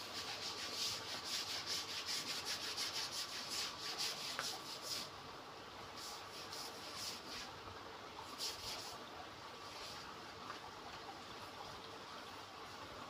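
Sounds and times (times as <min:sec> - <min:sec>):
stiff brush scrubbing wet surface: 0:00.0 - 0:05.1, 0:06.0 - 0:07.5, 0:08.3 - 0:09.0.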